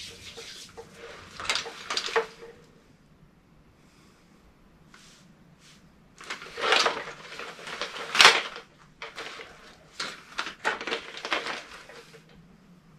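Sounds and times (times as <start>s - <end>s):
gear rustling and scraping: 0.0s - 2.6s, 6.2s - 12.4s.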